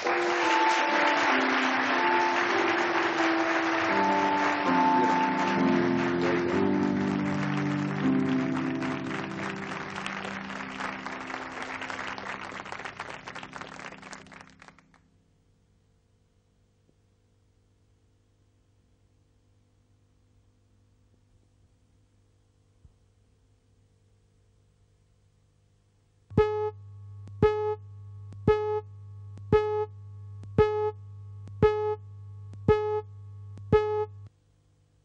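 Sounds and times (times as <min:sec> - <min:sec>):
instrumental music with held notes: 0:00.0 - 0:12.8
studio audience applauding: 0:00.0 - 0:15.0.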